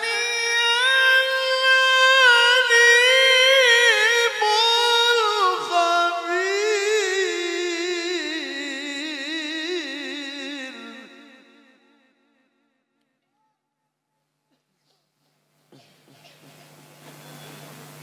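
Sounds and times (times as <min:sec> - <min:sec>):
man reciting melodically: 0:00.0 - 0:12.1.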